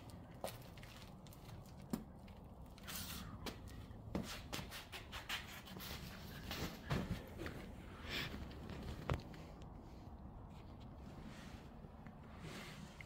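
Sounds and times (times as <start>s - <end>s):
low steady hum: 5.8s - 13.0s.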